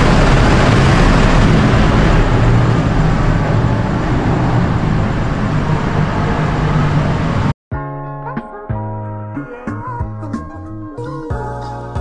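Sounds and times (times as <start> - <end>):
low hum: 0.0 - 7.6
metro train rumbling: 0.0 - 7.6.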